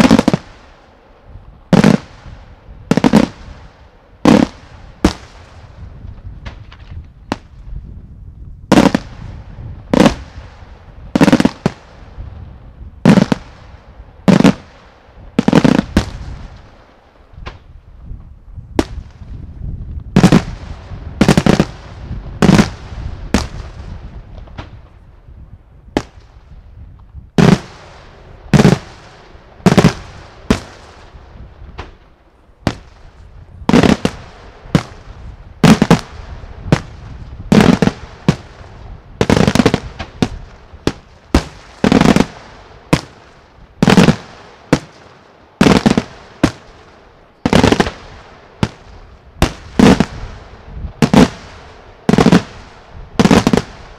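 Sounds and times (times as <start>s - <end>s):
fireworks bursting with loud bangs: 0.0s - 0.9s, 1.6s - 7.7s, 8.7s - 12.4s, 13.0s - 17.7s, 18.8s - 25.0s, 25.9s - 26.6s, 27.4s - 53.9s
fireworks crackling: 0.0s - 7.8s, 8.7s - 12.4s, 13.0s - 17.7s, 18.8s - 25.1s, 27.4s - 53.9s.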